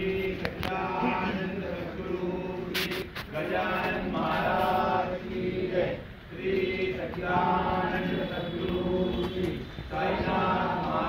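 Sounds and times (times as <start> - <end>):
group chanting a hymn: 0.0 - 11.0.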